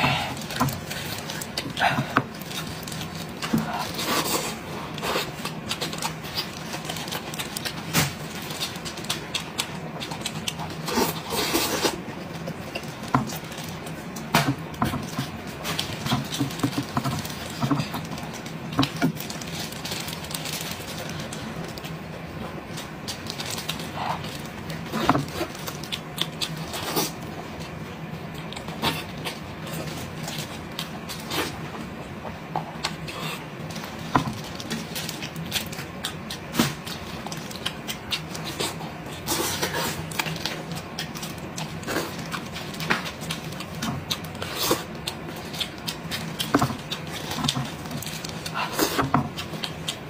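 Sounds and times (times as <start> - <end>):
wet chewing and lip-smacking: 0.4 - 19.4, 32.7 - 50.0.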